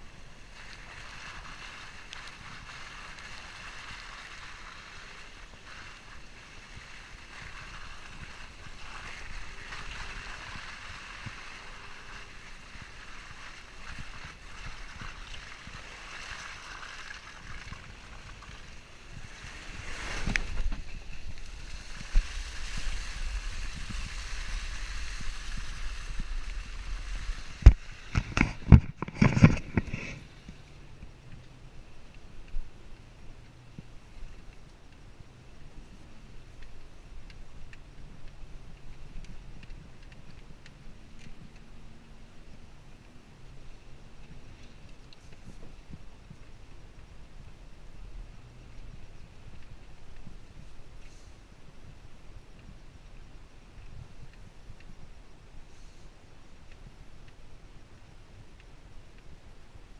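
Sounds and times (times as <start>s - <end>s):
vehicle low rumble: 0.0s - 59.9s
wind and tyre noise: 0.0s - 59.9s.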